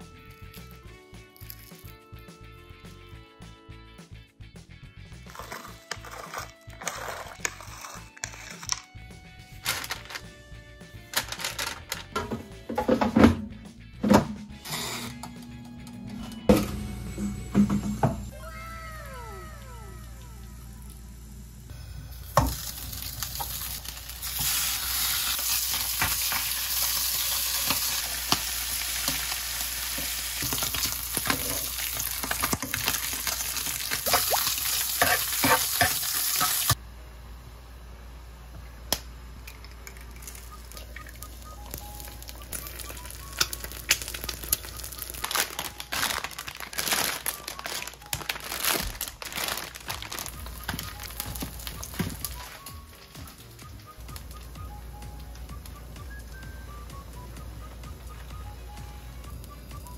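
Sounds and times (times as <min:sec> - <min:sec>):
plastic packets crinkling: 0:09.6 - 0:10.3, 0:42.0 - 0:53.2
crackles: 0:19.6 - 0:36.8, 0:39.6 - 0:56.4
meat sizzling in a frying pan: 0:22.2 - 0:36.8.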